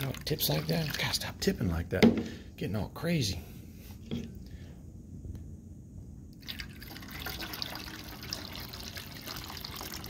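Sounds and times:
water trickling through funnel: 0:00.0 - 0:01.2, 0:06.4 - 0:10.0.

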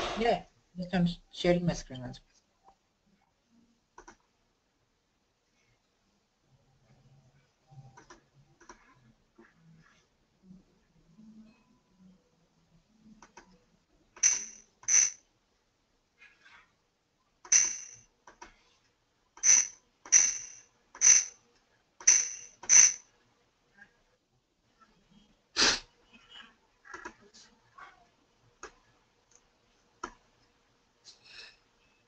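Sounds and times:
computer mouse clicking: 0:04.0 - 0:04.3, 0:07.8 - 0:09.5, 0:13.2 - 0:13.6, 0:28.6 - 0:30.2.

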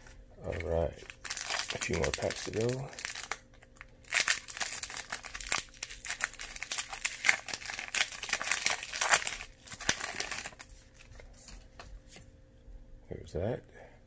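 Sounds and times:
cards rustling: 0:00.4 - 0:03.4, 0:04.1 - 0:12.3
foil wrapper crinkling: 0:00.4 - 0:11.8.

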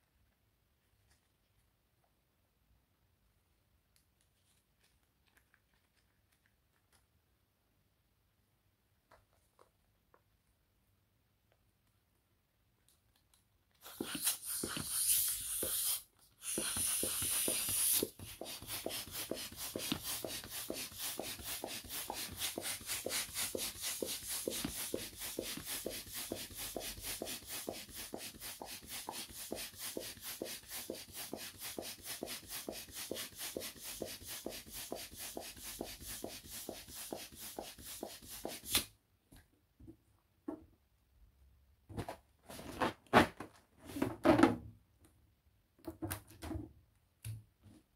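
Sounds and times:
balloon pump strokes: 0:13.8 - 0:38.8.

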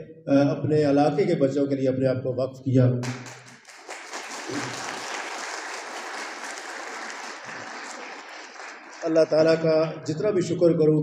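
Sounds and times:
audience applauding: 0:03.0 - 0:09.9.

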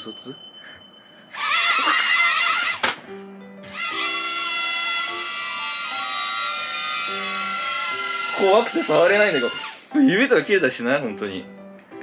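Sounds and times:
toy drone propellers whining: 0:01.3 - 0:02.9, 0:03.6 - 0:09.8
background music with low notes: 0:02.6 - 0:12.0.

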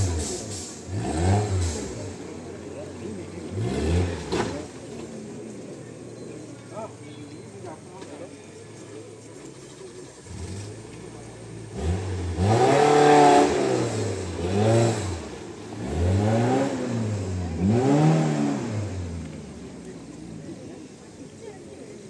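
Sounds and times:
engine revving hard: 0:00.0 - 0:04.8, 0:10.2 - 0:19.6.

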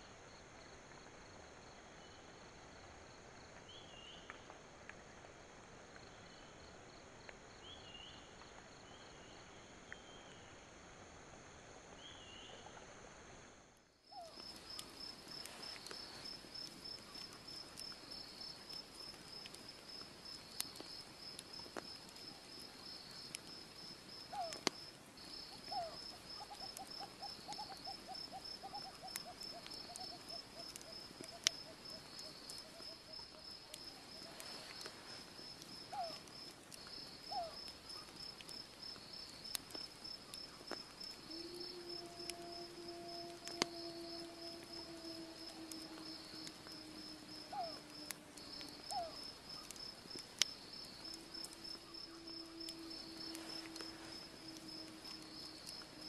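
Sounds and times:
campfire popping: 0:14.1 - 0:56.0
insects trilling: 0:14.1 - 0:56.0.

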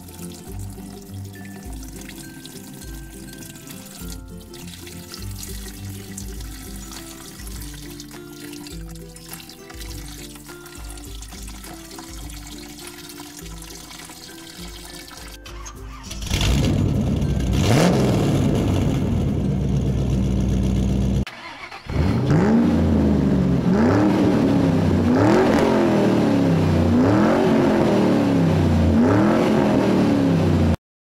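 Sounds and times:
race car engine revving: 0:16.1 - 0:30.8.

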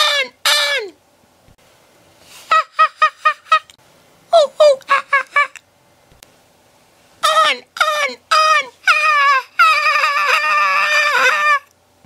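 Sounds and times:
high-pitched cartoonish voice cackling: 0:00.0 - 0:01.0, 0:02.5 - 0:03.7, 0:04.3 - 0:05.6, 0:07.2 - 0:11.7.

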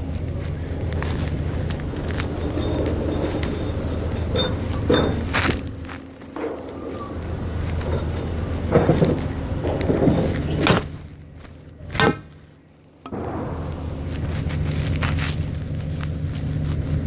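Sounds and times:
boots crunching through snow: 0:00.0 - 0:06.3, 0:13.2 - 0:17.0
low engine drone: 0:00.0 - 0:17.0.

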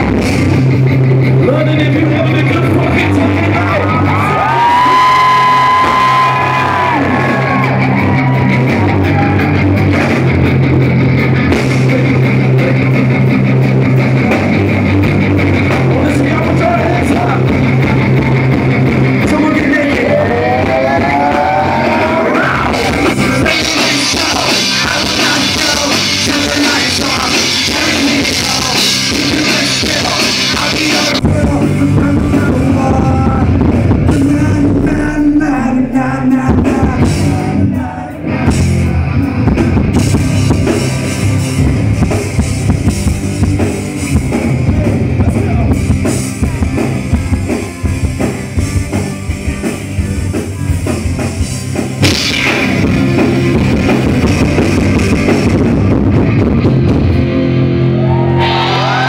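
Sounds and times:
drums: 0:00.0 - 0:59.0
electric guitars: 0:00.0 - 0:59.0
man singing: 0:15.7 - 0:18.3, 0:19.2 - 0:39.4.

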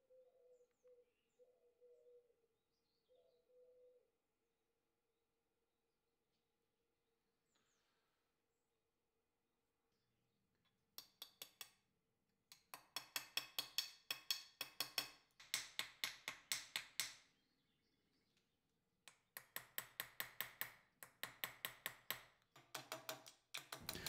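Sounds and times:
hammer tapping on metal punch: 0:12.8 - 0:17.1.

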